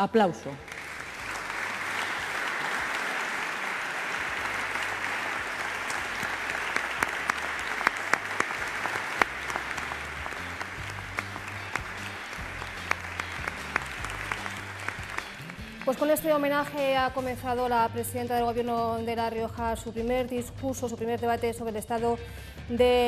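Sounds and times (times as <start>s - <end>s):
crowd applauding: 0.6s - 16.8s.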